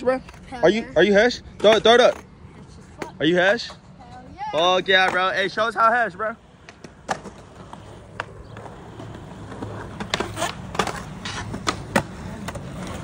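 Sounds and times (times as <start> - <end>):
skateboard wheels rolling on pavement: 0.0 - 13.0
skateboard clacks: 6.6 - 13.0.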